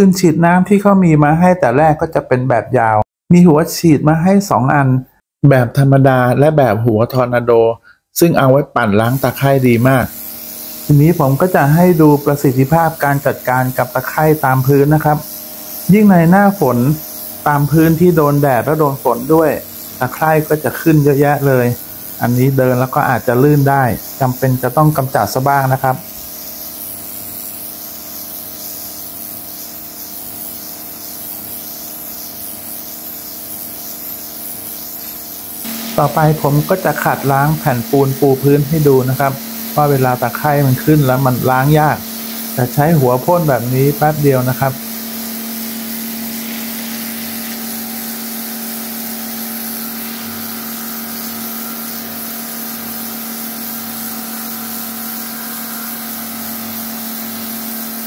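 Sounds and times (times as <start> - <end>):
pressure washer motor hum: 9.0 - 58.0
water spray hissing on concrete: 9.0 - 58.0
pump motor hum: 35.6 - 58.0.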